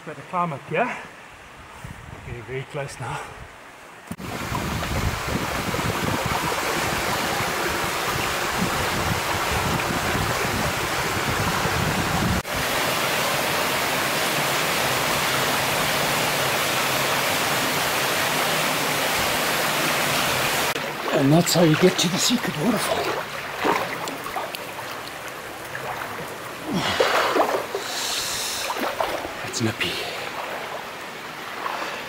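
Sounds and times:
waterfall into rock pool: 0:04.2 - 0:32.0.

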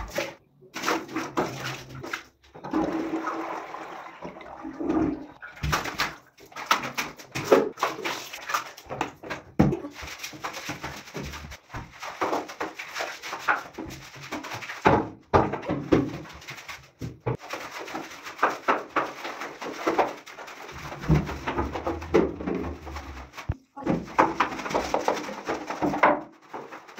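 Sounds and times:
cleaning tool scrubbing wet tiles: 0:05.6 - 0:26.9.

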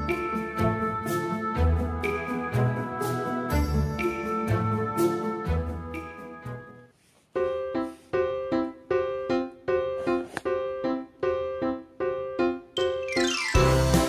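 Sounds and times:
background music: 0:00.0 - 0:06.9, 0:12.6 - 0:14.0.

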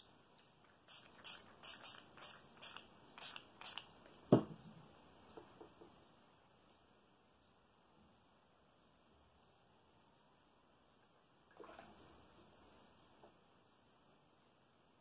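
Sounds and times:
spray bottle spritzing: 0:00.7 - 0:03.9.

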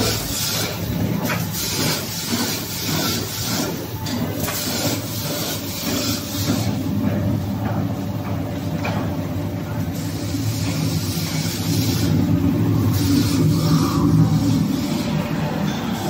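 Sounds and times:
machinery drone: 0:00.0 - 0:03.0, 0:09.4 - 0:16.0.

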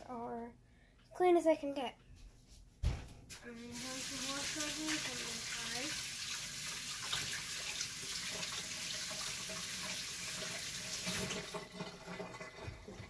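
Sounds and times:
water running from a tap: 0:03.5 - 0:13.0.

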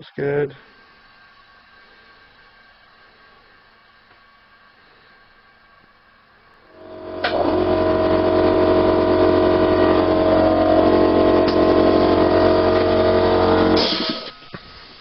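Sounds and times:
electric air compressor running: 0:06.7 - 0:15.0.

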